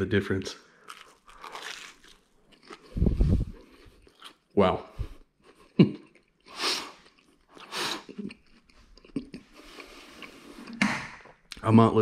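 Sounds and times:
chewing sandwich: 0.8 - 4.5, 5.1 - 10.8.

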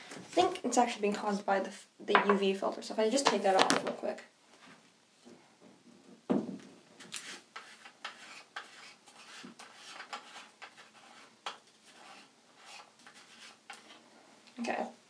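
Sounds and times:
small clicks and scrapes: 7.0 - 14.0.

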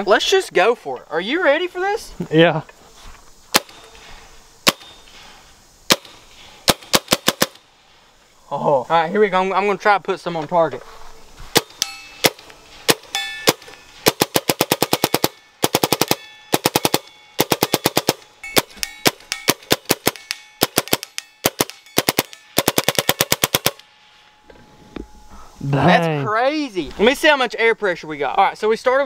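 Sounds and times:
air rifle firing pellets: 3.5 - 3.9, 4.6 - 5.0, 5.9 - 7.7, 11.5 - 23.9
brief ringing tone: 23.9 - 25.6.

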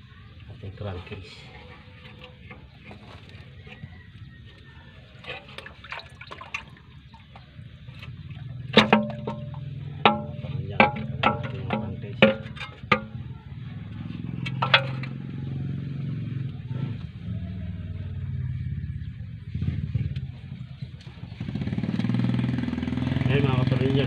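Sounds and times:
low engine hum: 6.5 - 24.0
metal pan clinking and knocking: 8.7 - 13.4, 14.4 - 15.3.

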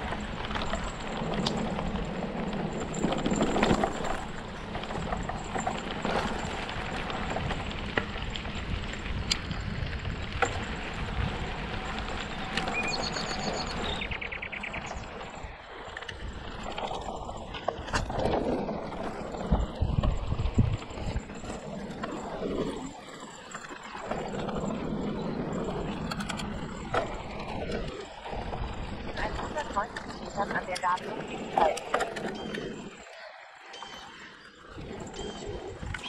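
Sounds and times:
bike tyres rolling on dirt trail: 0.0 - 36.0
bird singing: 12.3 - 15.3, 29.4 - 35.6.

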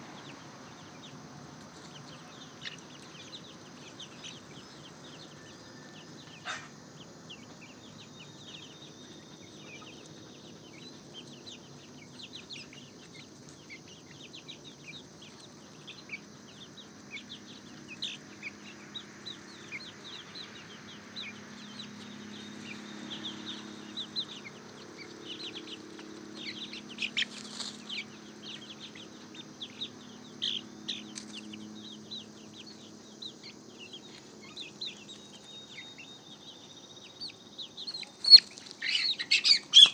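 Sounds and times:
chicks peeping: 0.0 - 39.9
lower soft calls: 37.2 - 39.9.

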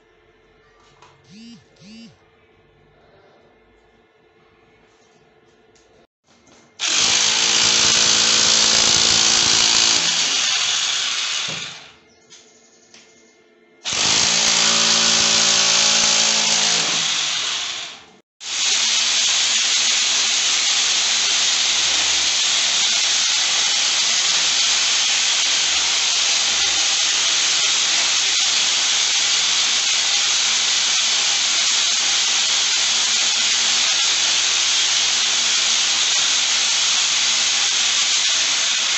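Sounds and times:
electric drill boring into brick: 6.8 - 12.0, 13.8 - 38.9.

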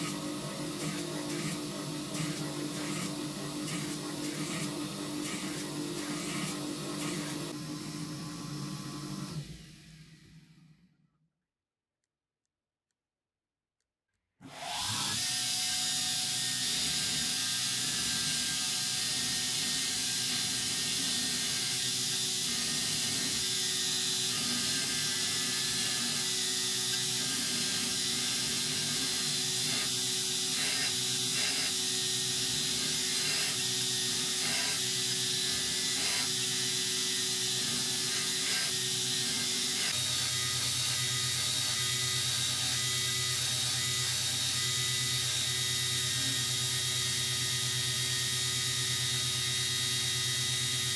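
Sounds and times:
belt grinder grinding steel: 0.0 - 7.6, 17.6 - 48.0.

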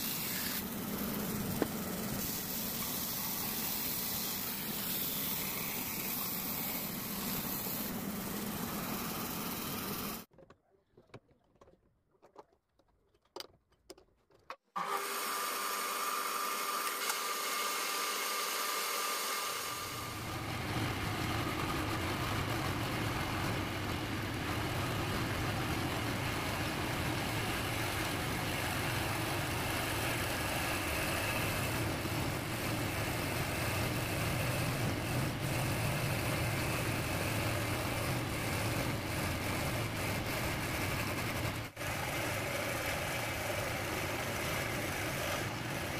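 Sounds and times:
wood lathe humming: 0.0 - 10.3, 14.8 - 45.9.

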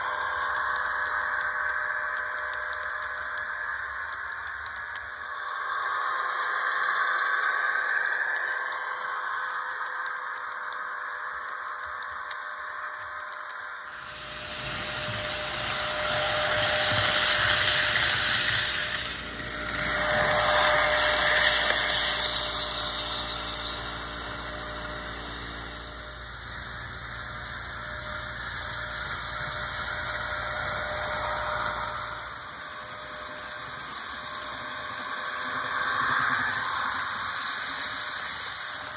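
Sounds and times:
model train motor whine: 0.0 - 38.9
wheels rattling on rails: 13.6 - 38.9.

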